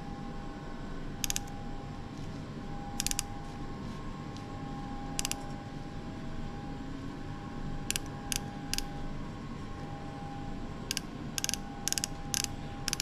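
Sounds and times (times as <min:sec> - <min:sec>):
faint steady hum: 0:00.0 - 0:13.0
micrometer ratchet clicking: 0:01.2 - 0:01.5, 0:03.0 - 0:03.3, 0:05.2 - 0:05.4, 0:10.9 - 0:13.0.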